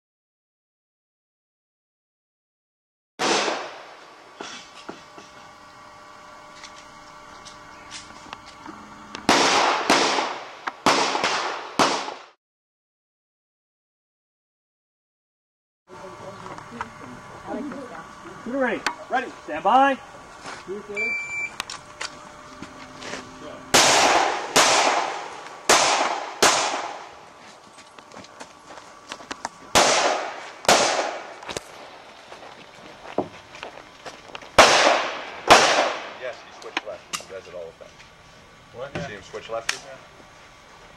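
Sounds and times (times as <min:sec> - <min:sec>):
handgun shots: 0:09.3 - 0:12.3, 0:23.8 - 0:27.0, 0:29.8 - 0:31.3, 0:34.6 - 0:36.2.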